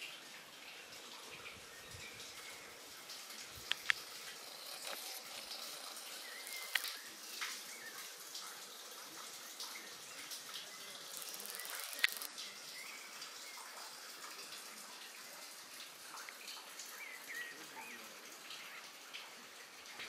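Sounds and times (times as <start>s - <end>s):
water-like hiss: 1.3s - 16.8s
sharp clicks: 3.6s - 7.6s, 11.1s - 12.3s.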